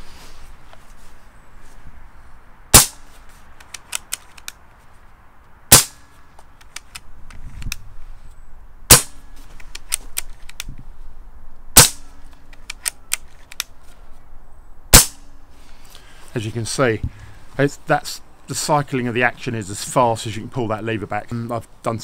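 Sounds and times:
air rifle shots: 2.7s - 3.0s, 5.7s - 6.0s, 8.9s - 9.2s, 11.8s - 12.1s, 14.9s - 15.3s
rifle lever clicks: 3.6s - 4.6s, 12.4s - 13.7s.

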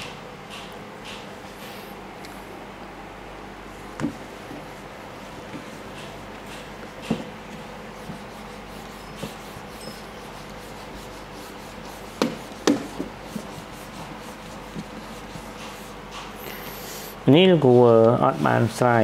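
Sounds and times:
eraser wiping a whiteboard: 4.5s - 19.0s
sharp knocks on whiteboard: 12.2s - 13.1s.

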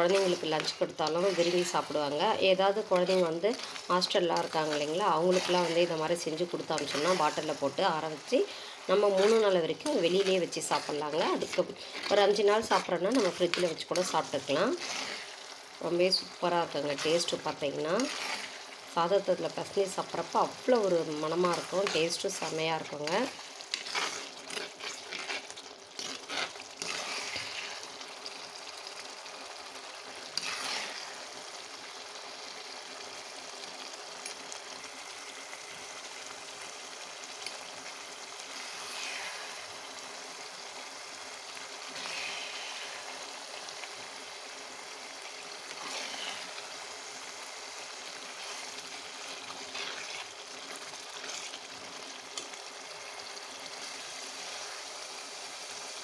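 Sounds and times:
metal spatula scraping: 0.0s - 15.5s, 16.7s - 18.8s, 19.7s - 28.0s, 30.2s - 31.3s, 45.7s - 46.6s, 48.3s - 52.6s
gravy bubbling and sizzling: 0.0s - 56.0s.

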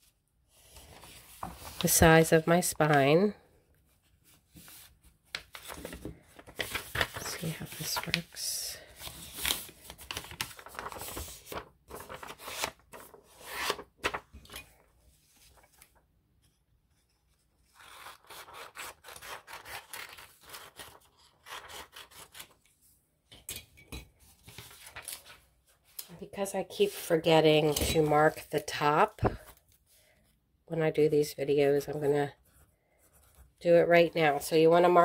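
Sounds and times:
paper rustling and creasing: 0.5s - 2.2s, 3.9s - 22.8s, 24.3s - 30.0s.

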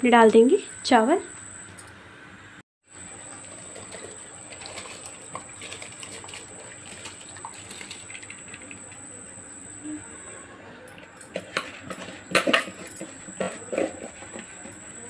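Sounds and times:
rice poured into boiling water: 3.0s - 9.1s
thin high whine: 6.1s - 15.0s.

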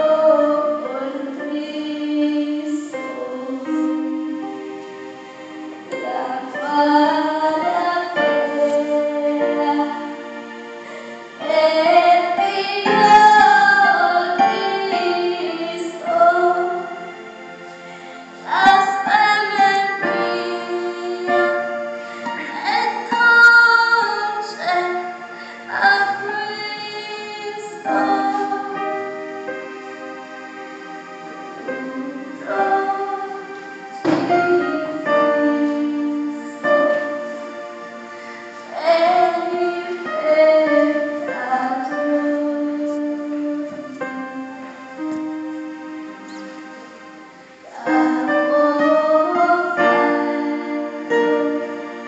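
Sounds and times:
woman singing: 0.0s - 4.5s, 5.9s - 10.3s, 11.4s - 17.1s, 18.4s - 29.4s, 31.6s - 37.1s, 38.7s - 44.5s, 47.7s - 51.7s
instrumental accompaniment: 0.0s - 52.0s.

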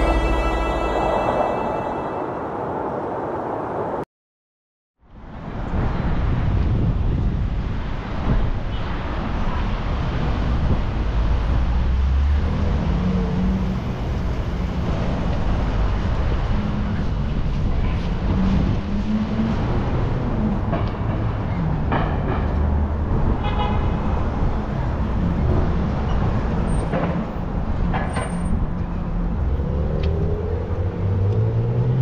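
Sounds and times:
car horn: 0.0s - 2.6s, 23.4s - 24.0s
cars passing with low rumble: 5.1s - 32.0s.

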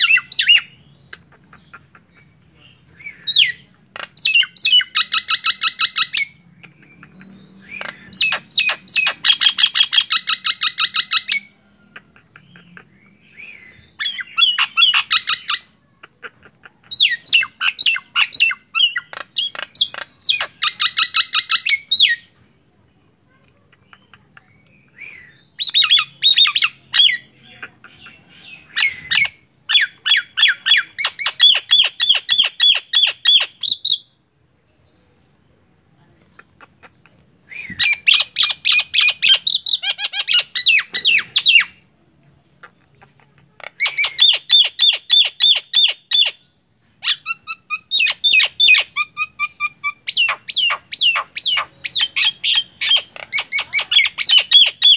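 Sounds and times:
myna bird calling harshly: 7.3s - 11.6s, 43.6s - 46.4s, 47.0s - 54.9s.

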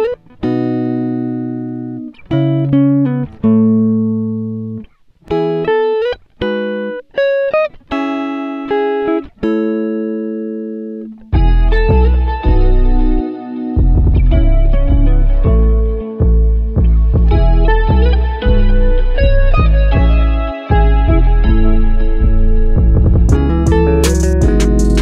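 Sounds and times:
plucked string melody: 0.0s - 25.0s.

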